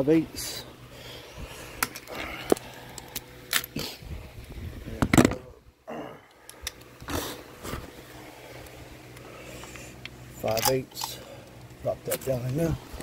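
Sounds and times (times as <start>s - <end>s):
metallic clicks of hand tools: 10.4s - 11.2s.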